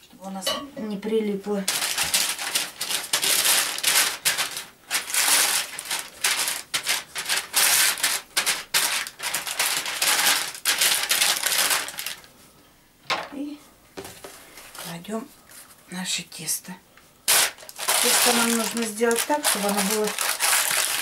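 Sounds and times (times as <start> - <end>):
pastry brush rustling on paper: 1.7 - 12.2, 17.3 - 21.0.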